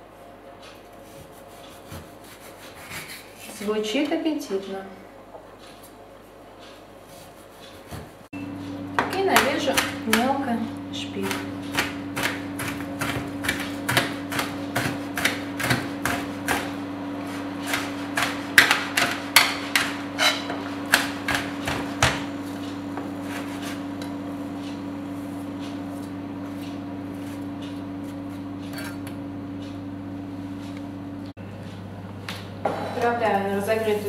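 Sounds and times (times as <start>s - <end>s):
steady low hum: 0.0s - 34.0s
knife chopping on cutting board: 11.2s - 22.3s.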